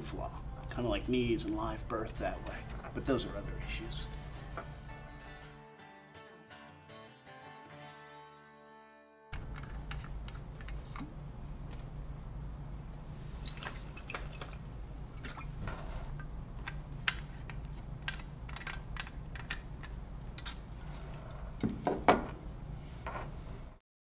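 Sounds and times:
steady low hum: 0.0 - 5.4, 9.4 - 23.8
faint liquid sounds: 12.8 - 16.2.

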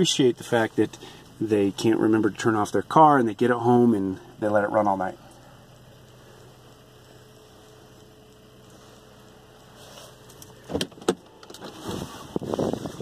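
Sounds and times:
faint steady hum: 0.0 - 13.0
car door latch clicks: 10.7 - 11.8.

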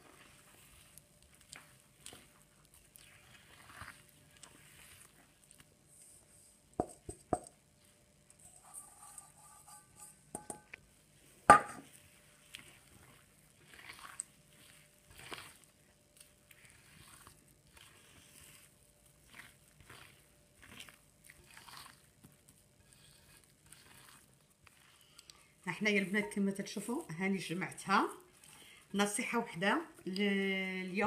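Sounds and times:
hand kneading soft dough: 0.0 - 9.6, 10.8 - 31.0.

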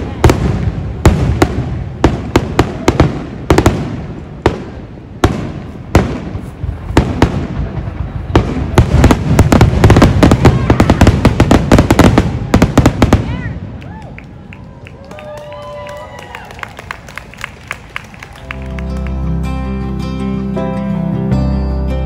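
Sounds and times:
fireworks bangs: 0.0 - 14.6
fireworks crackling: 0.0 - 19.6.

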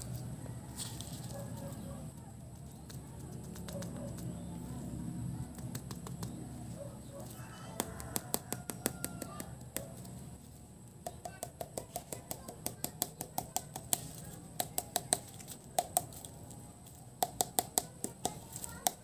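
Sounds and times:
fingers tearing cardboard tube: 7.8 - 10.2.

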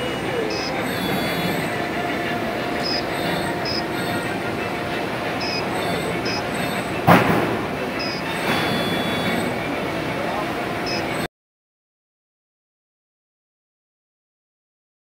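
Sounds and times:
machine shop noise: 0.0 - 11.3
short high chirps: 5.4 - 7.0, 8.0 - 9.6, 10.9 - 11.3
sharp knock: 7.1 - 7.7.

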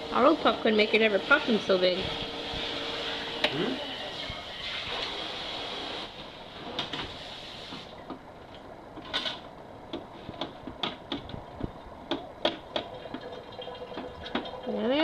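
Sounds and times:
popcorn popping: 8.0 - 15.0.

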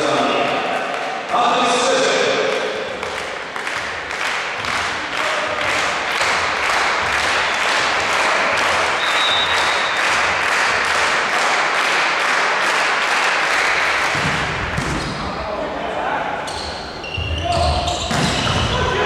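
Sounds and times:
crowd clapping in rhythm: 0.4 - 14.8.

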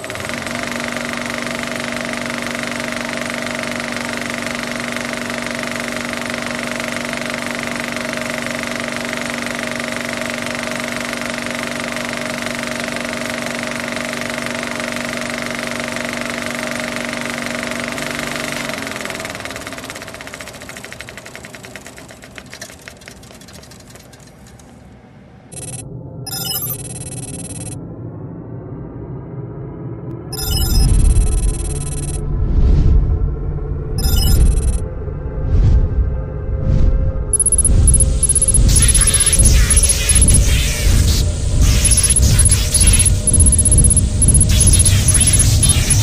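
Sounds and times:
drone motors whining: 0.0 - 24.7, 25.5 - 27.8, 30.3 - 32.2, 34.0 - 34.8, 37.3 - 46.0.

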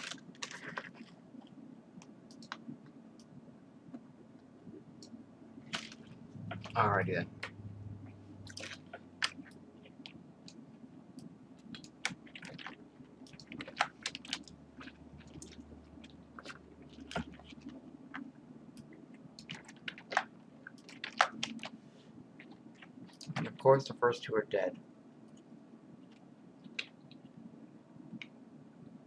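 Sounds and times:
sharp clicks and crackles: 0.0 - 3.3, 11.2 - 21.8
faint low hum: 0.0 - 29.0.

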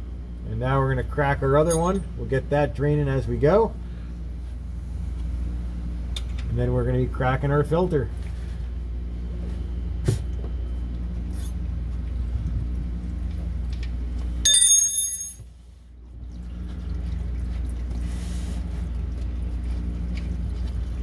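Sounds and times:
steady low hum: 0.0 - 21.0
metal tool striking metal: 14.5 - 15.4.

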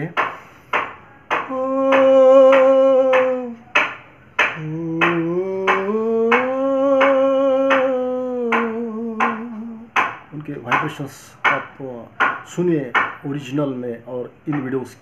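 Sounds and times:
man singing held notes: 1.4 - 3.7, 4.6 - 10.0.

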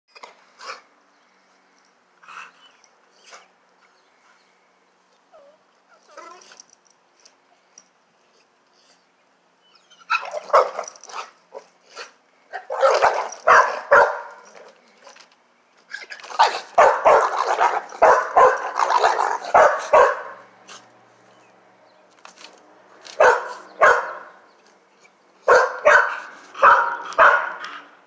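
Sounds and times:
dog barking: 12.6 - 14.4, 16.4 - 20.4, 23.2 - 24.3, 25.4 - 27.7.

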